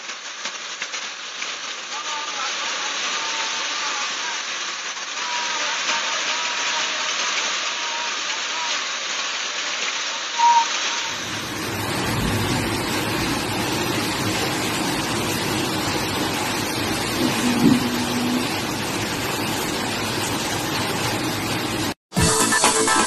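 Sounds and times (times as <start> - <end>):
hail and rain pelting: 0.0 - 22.0
short low tone: 17.1 - 18.5.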